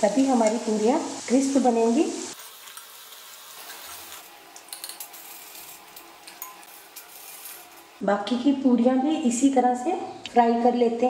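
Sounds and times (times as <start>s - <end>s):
food deep-frying in hot oil: 0.0s - 8.0s.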